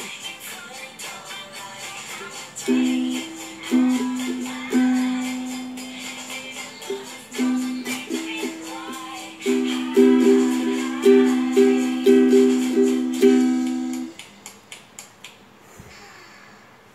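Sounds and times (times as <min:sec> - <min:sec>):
ukulele strumming chords: 0:01.6 - 0:14.2.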